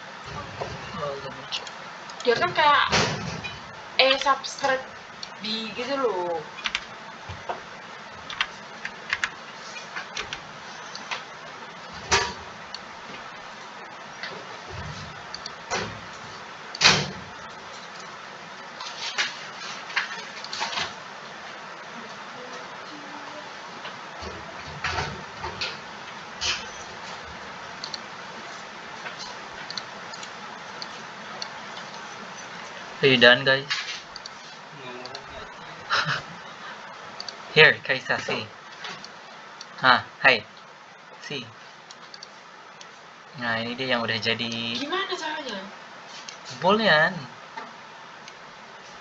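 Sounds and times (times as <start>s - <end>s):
background hiss: 0.0s - 49.0s
computer mouse clicking: 8.3s - 9.4s, 15.3s - 15.6s, 27.8s - 28.0s, 29.6s - 32.1s, 34.1s - 34.4s, 41.9s - 42.9s.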